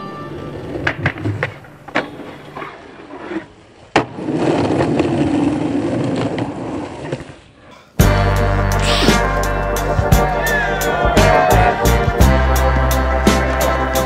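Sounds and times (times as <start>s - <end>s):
skateboard wheels rolling on asphalt: 0.0s - 7.7s
skateboard pops and impacts: 0.8s - 7.4s.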